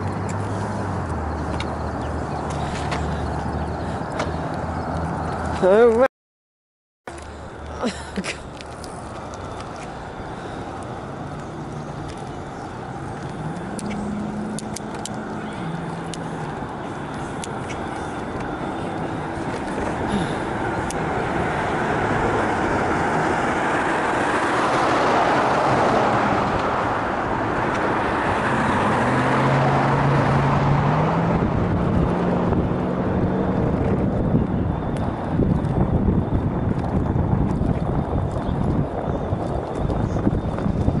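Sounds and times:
cars passing: 0:00.0 - 0:06.1, 0:07.1 - 0:41.0
vehicle engine hum rising: 0:00.0 - 0:06.1, 0:07.1 - 0:41.0
wind on microphone: 0:15.6 - 0:41.0.

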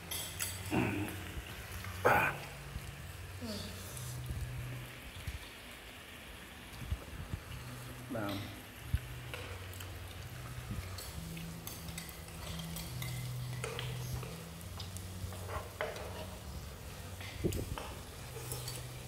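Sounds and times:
vegetables sizzling in a pan: 0:00.0 - 0:19.0
chopsticks clicking against pan: 0:09.2 - 0:16.3.

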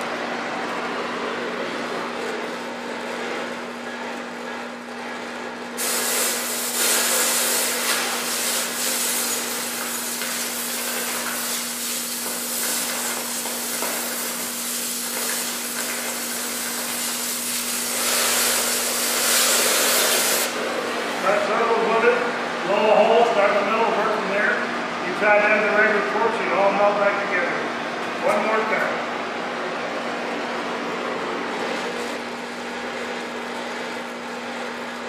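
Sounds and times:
cutting torch hissing: 0:05.8 - 0:20.6.

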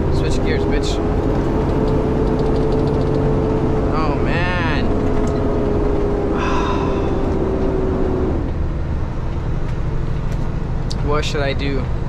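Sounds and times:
steady whine: 0:00.0 - 0:11.8
diesel engine rumbling: 0:00.0 - 0:12.0.

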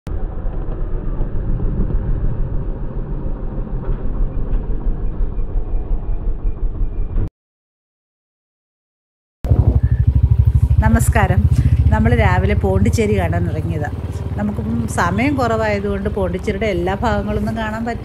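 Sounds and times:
road and wind rumble: 0:00.1 - 0:06.9, 0:09.5 - 0:18.0
motorcycle engine running: 0:09.4 - 0:18.0.

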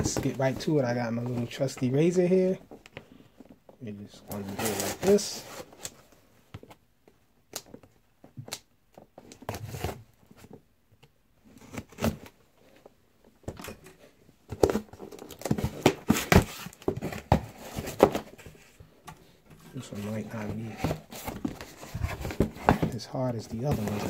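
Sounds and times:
cardboard rustling: 0:00.0 - 0:06.8, 0:13.5 - 0:24.0.

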